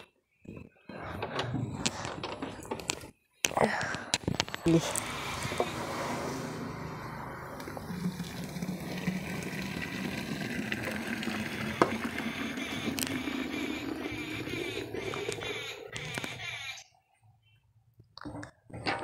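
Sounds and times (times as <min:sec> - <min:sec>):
milk pouring into a can: 0:07.6 - 0:15.5.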